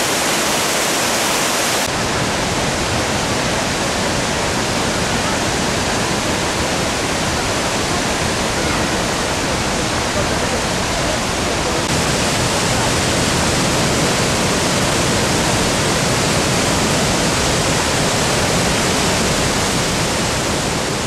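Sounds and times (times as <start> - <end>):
waterfall rushing: 0.0 - 21.0.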